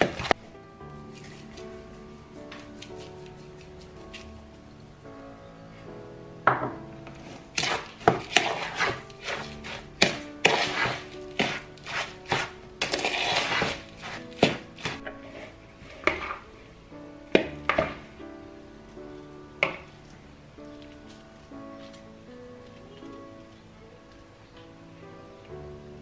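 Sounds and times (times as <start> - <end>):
soft background music: 0.0 - 26.0
fork scraping a plastic bowl: 7.4 - 16.4.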